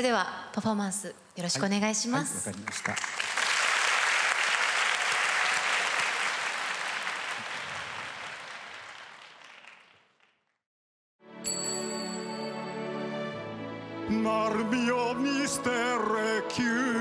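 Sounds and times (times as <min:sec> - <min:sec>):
audience applauding: 0:02.5 - 0:10.4.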